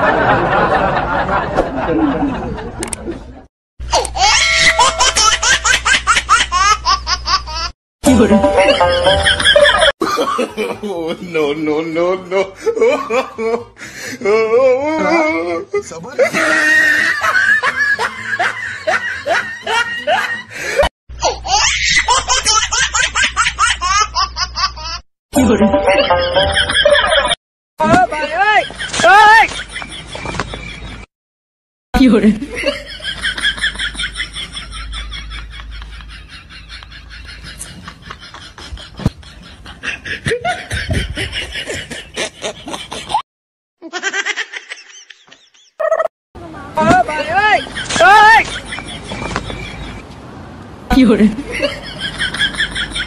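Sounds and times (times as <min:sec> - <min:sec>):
loud laughter: 0:00.0 - 0:11.0, 0:16.2 - 0:20.9, 0:32.5 - 0:43.2, 0:47.2 - 0:50.0
person laughing: 0:08.1 - 0:10.4, 0:16.2 - 0:18.1, 0:35.3 - 0:43.2
fast laugh: 0:32.5 - 0:43.2, 0:43.8 - 0:46.1, 0:47.4 - 0:49.9.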